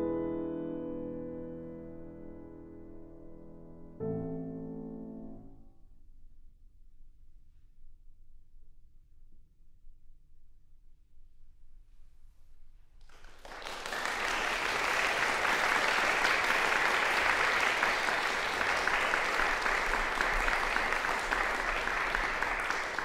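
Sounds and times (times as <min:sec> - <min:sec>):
audience applauding: 0:13.0 - 0:23.0.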